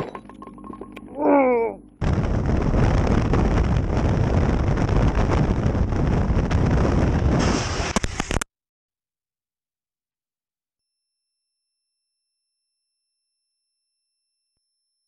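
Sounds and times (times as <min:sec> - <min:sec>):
short falling cry: 0:01.1 - 0:01.8
wind rushing over microphone: 0:02.0 - 0:08.0.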